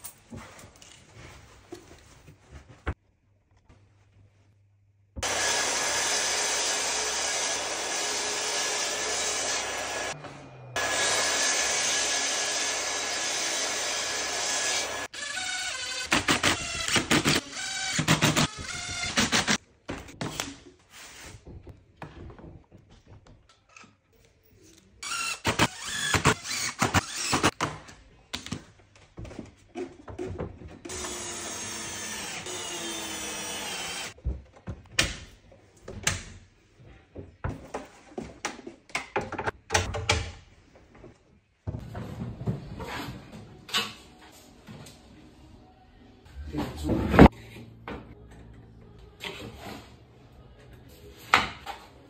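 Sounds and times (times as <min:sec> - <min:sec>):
drill driving screws: 0:10.8 - 0:19.6, 0:25.0 - 0:27.6, 0:30.9 - 0:34.2
knocks and clatter of wooden parts: 0:21.5 - 0:24.0, 0:26.8 - 0:30.9, 0:36.8 - 0:42.8.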